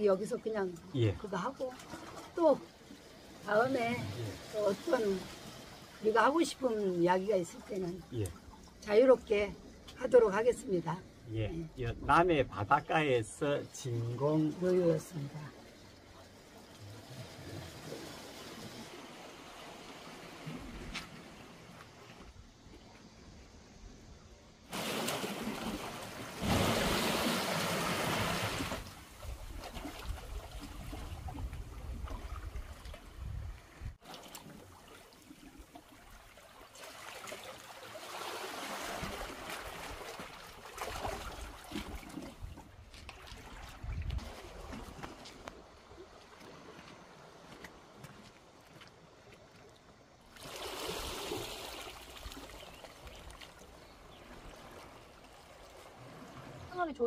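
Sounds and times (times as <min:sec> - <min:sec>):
water trickling and splashing: 0:00.0 - 0:23.2, 0:24.6 - 0:57.0
seawater lapping against rocks: 0:00.2 - 0:09.9, 0:12.5 - 0:23.2, 0:24.7 - 0:57.0
seawater splashing against rocks: 0:24.7 - 0:33.2, 0:34.0 - 0:48.2.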